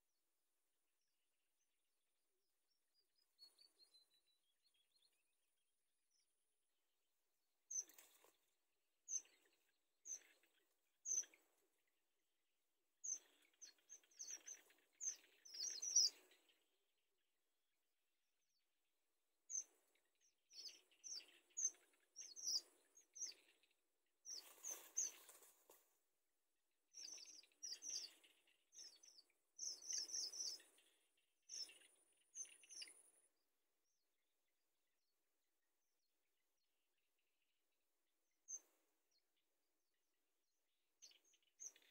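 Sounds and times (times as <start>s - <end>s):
rustling of nest grass: 24.3s - 25.9s.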